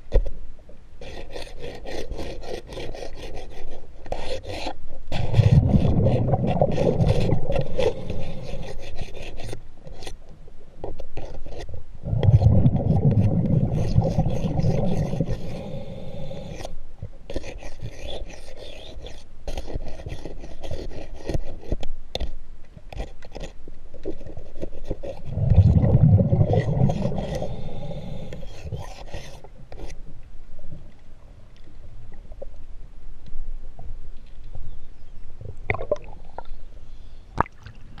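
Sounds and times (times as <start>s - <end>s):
scraper scraping underwater: 1.0s - 10.2s, 10.9s - 21.8s, 23.0s - 30.2s.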